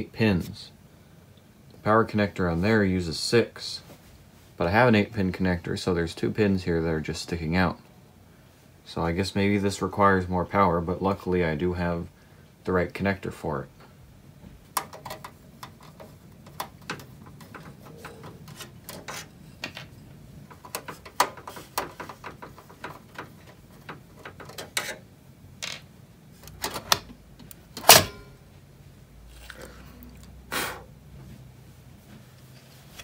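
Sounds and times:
metal clicks and rattles: 0:14.7 - 0:28.3.

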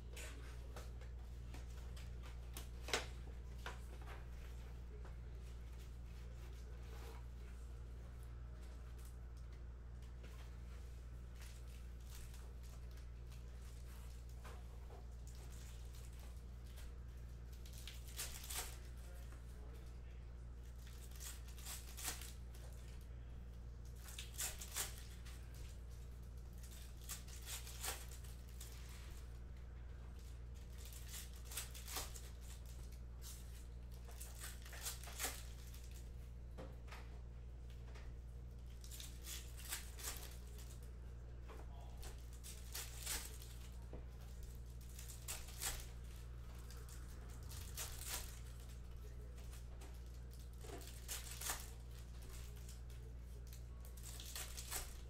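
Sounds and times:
foil packs crinkling and tearing: 0:17.6 - 0:19.2, 0:24.0 - 0:25.2, 0:30.7 - 0:36.0, 0:44.3 - 0:49.6, 0:50.3 - 0:55.0.

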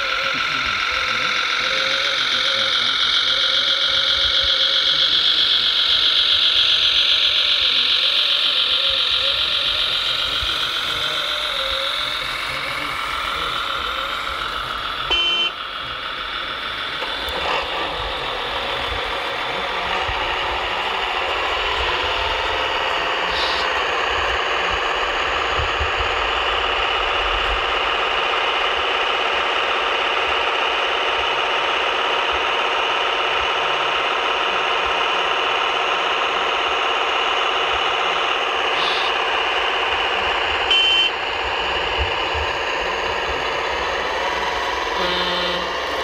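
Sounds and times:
electric motors humming: 0:00.0 - 0:46.0
simulated truck engine: 0:00.0 - 0:46.0
short loud tone: 0:15.1 - 0:15.6, 0:40.7 - 0:41.2, 0:45.0 - 0:45.7.

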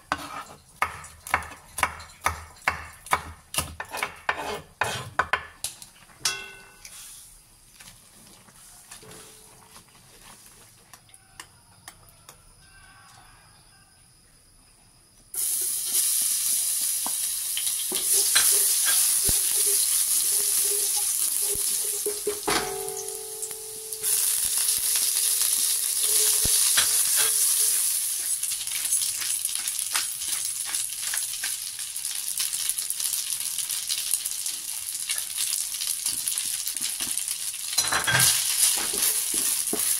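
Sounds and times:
spatula stirring in a wok: 0:00.0 - 0:02.0, 0:03.6 - 0:05.2, 0:15.4 - 0:22.4, 0:24.2 - 0:31.8, 0:35.2 - 0:39.9
garlic sizzling in hot oil: 0:00.0 - 0:05.1, 0:15.4 - 0:39.9.

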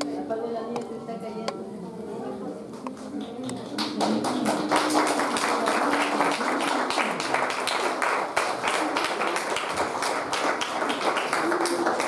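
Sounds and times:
crowd clapping: 0:02.8 - 0:12.0.

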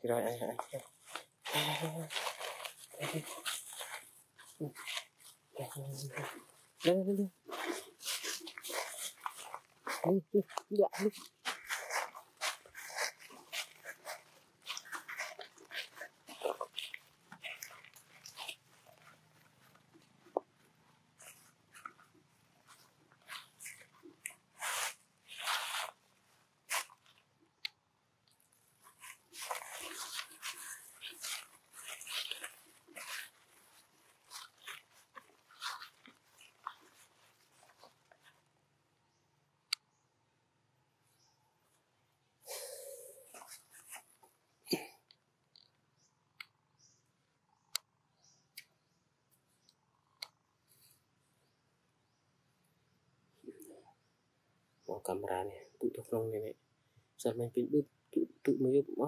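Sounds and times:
soft rustles: 0:00.4 - 0:27.4, 0:28.4 - 0:38.8, 0:43.2 - 0:44.4
dry leaves crunching underfoot: 0:00.6 - 0:20.4, 0:22.7 - 0:26.0, 0:26.6 - 0:27.2, 0:28.9 - 0:38.2.

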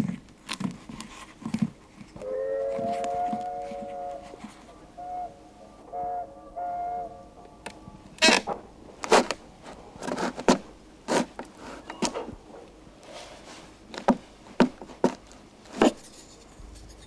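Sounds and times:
knife shaving wood: 0:00.0 - 0:04.7, 0:09.0 - 0:11.9.

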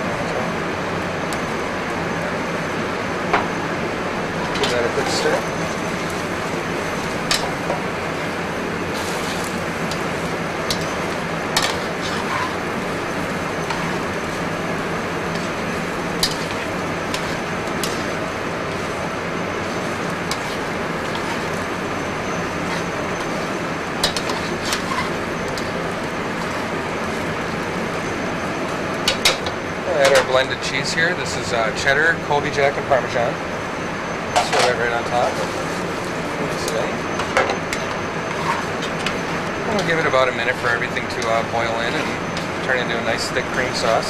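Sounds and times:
gas burner hissing: 0:00.0 - 0:44.0
pan simmering: 0:03.6 - 0:32.4, 0:35.0 - 0:44.0
metal tongs clinking on pan: 0:16.2 - 0:18.1.

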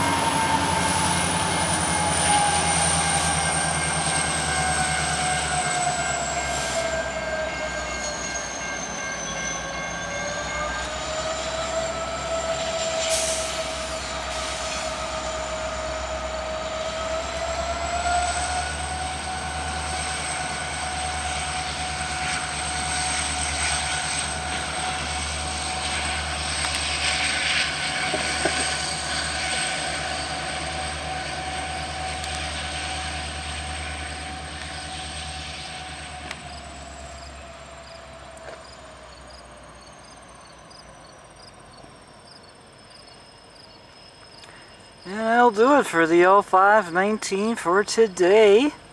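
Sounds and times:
train wheels squealing: 0:00.0 - 0:45.1
diesel locomotive engine hum: 0:00.0 - 0:48.9
crossing bell ringing: 0:03.0 - 0:12.6
train clanks: 0:18.0 - 0:37.1.

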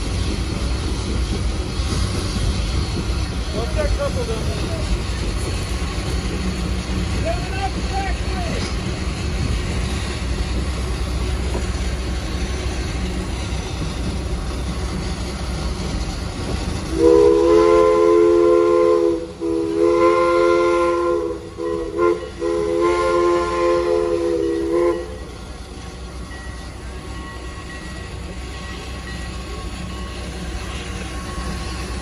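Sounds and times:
steam locomotive chime whistle: 0:16.9 - 0:25.4, 0:26.2 - 0:32.0.

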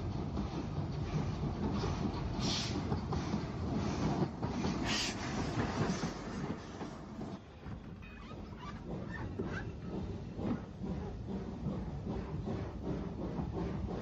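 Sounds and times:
train wheels clattering: 0:00.0 - 0:14.0
steam hisses: 0:02.4 - 0:02.9, 0:04.7 - 0:06.7.

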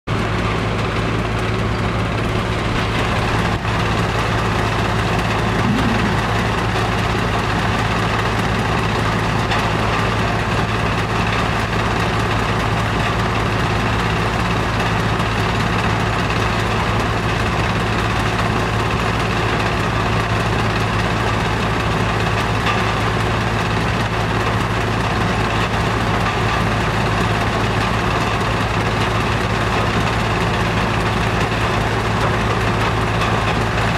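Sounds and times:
heavy machinery engine humming: 0:00.1 - 0:33.9.

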